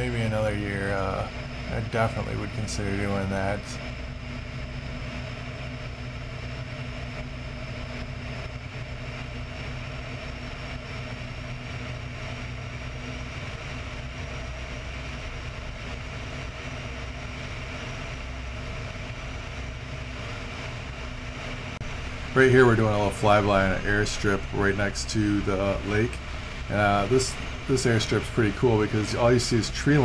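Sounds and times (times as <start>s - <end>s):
radial engine running: 0.0s - 30.0s
rush of air: 21.5s - 30.0s.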